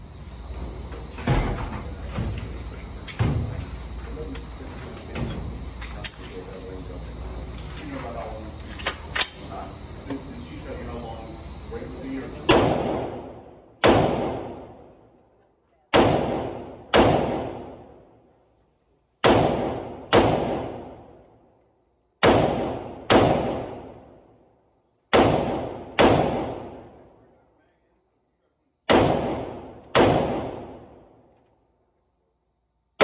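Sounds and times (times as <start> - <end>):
rifle gunshots echoing: 12.5 - 14.6, 15.9 - 17.8, 19.2 - 21.0, 22.2 - 23.9, 25.1 - 26.9, 28.9 - 30.9.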